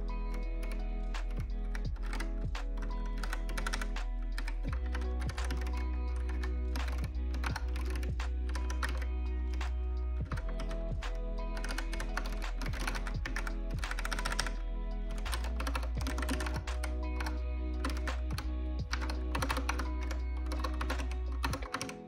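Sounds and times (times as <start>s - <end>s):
lofi music with deep bass: 0.0s - 22.0s
mechanical keyboard key clicks: 2.8s - 9.1s, 15.2s - 22.0s.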